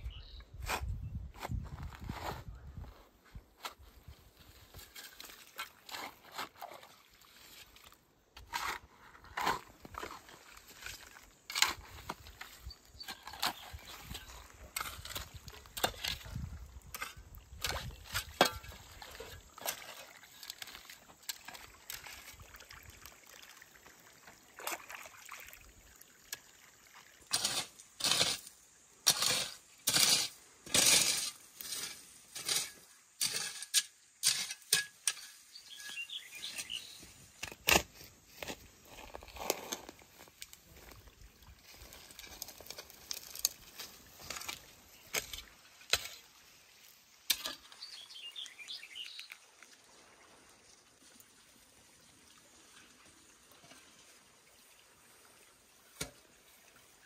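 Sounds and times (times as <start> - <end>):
spade scraping into soil: 4.5 - 6.8, 8.4 - 22.1, 27.3 - 40.9, 41.7 - 46.3, 47.3 - 49.1
earth clicks and knocks: 41.7 - 45.5.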